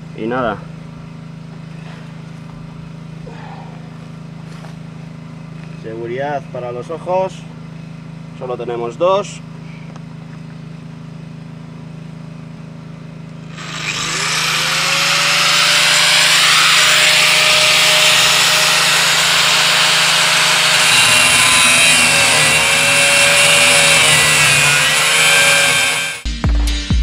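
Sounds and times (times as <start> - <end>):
angle grinder cutting steel: 13.5 - 26.3.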